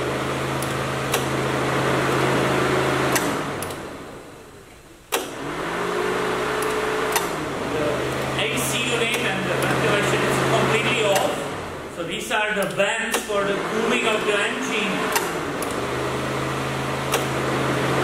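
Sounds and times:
electric cooling fans running: 0.0 - 18.0
fan relay click: 0.6 - 1.4, 3.1 - 3.9, 5.1 - 5.4, 6.6 - 7.4, 9.0 - 9.8, 10.8 - 11.6, 12.6 - 13.4, 15.1 - 15.8, 17.0 - 17.4.

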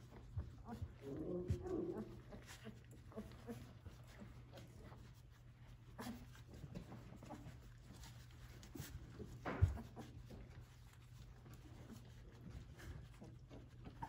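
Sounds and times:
puppies scratching and shuffling: 0.0 - 14.0.

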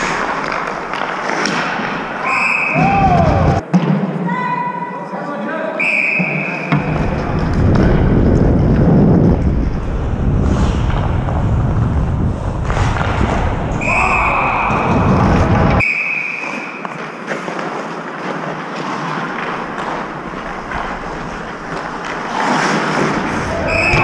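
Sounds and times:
ice rink ambience: 0.0 - 24.0
referee's whistle: 2.2 - 2.9, 5.8 - 6.8, 13.8 - 14.4, 15.8 - 16.8, 23.6 - 24.0
low rumbling movement: 6.8 - 15.8
wind noise: 6.8 - 15.8.

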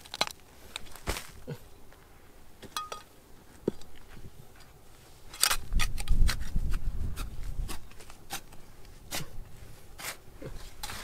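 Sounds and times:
trowel scraping stony soil: 6.1 - 11.0.

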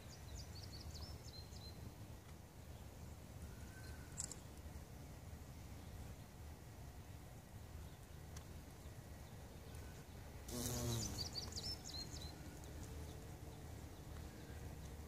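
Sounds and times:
faint outdoor background noise: 0.0 - 15.0
bumblebee buzzing past: 10.5 - 11.4.

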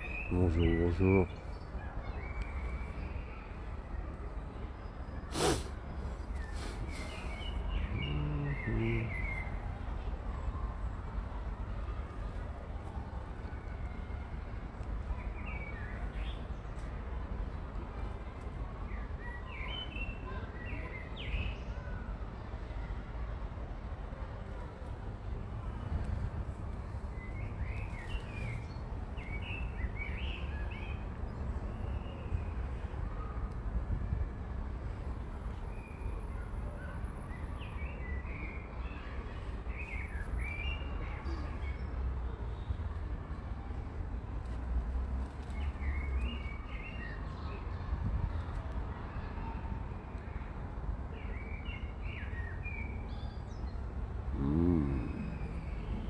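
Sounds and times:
songbird singing: 0.0 - 3.7, 4.7 - 9.6, 51.2 - 56.0
faint bird chirps: 53.1 - 56.0
breathy burst with falling pitch: 54.3 - 56.0.

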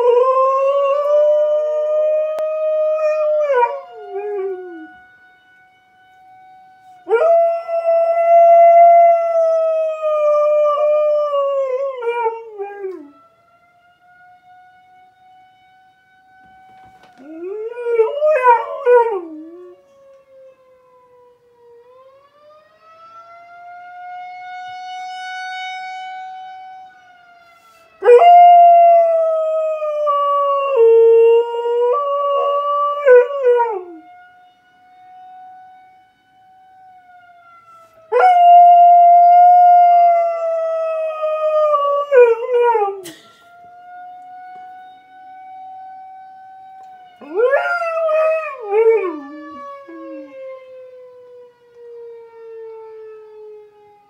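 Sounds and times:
tornado warning siren wailing: 0.0 - 54.0
dog howling: 28.0 - 34.0, 47.2 - 50.4.

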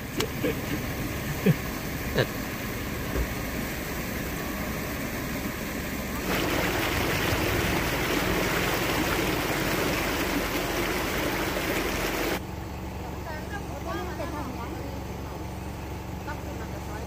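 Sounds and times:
floodwater rushing: 0.0 - 12.4.

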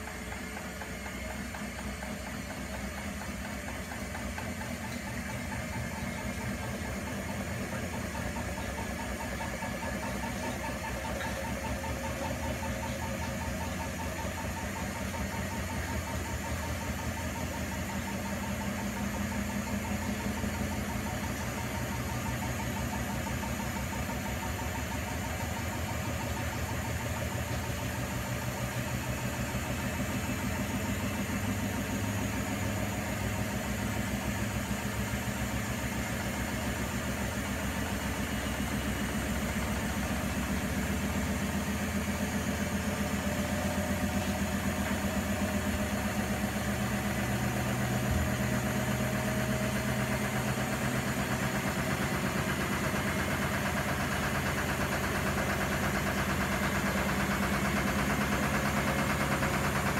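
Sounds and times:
washing machine drum spinning: 0.0 - 59.9.

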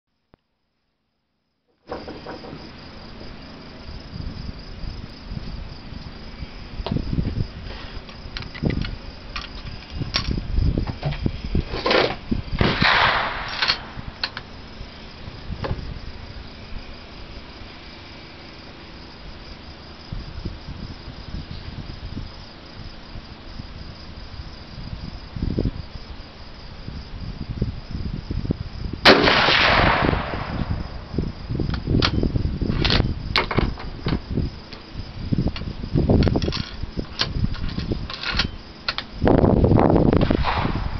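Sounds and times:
insects chirring: 0.1 - 40.9
rifle shot: 12.6 - 14.2, 29.0 - 31.1, 40.2 - 40.9.

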